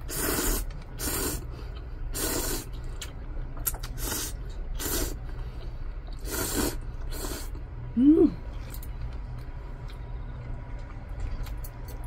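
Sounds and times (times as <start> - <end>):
noodles being slurped: 0.0 - 2.8, 3.7 - 5.2, 6.1 - 7.6.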